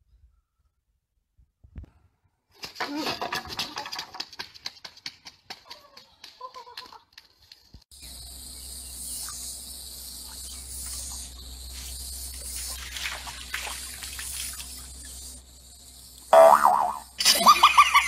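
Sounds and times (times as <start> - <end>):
high insect-like hiss: 7.9 - 18.0.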